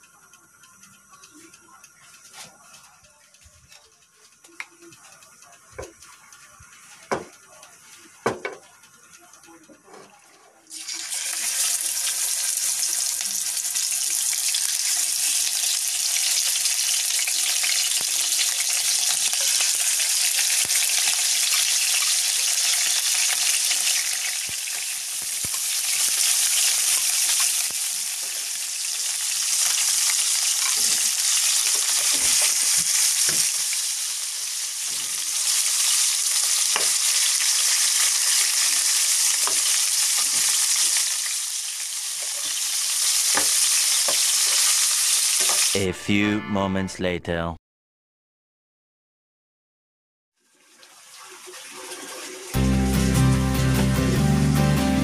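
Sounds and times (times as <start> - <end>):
spoon knocking against pan: 7.1 - 7.4, 8.2 - 8.6
chicken sizzling in hot oil: 10.7 - 45.8, 50.4 - 52.6.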